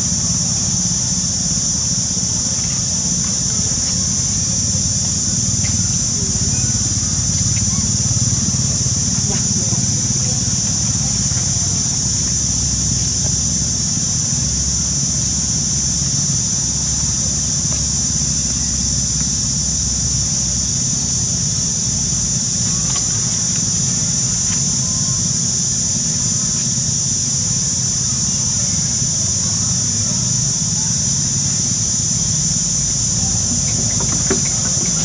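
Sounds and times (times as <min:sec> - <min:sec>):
insects buzzing: 0:00.0 - 0:35.0.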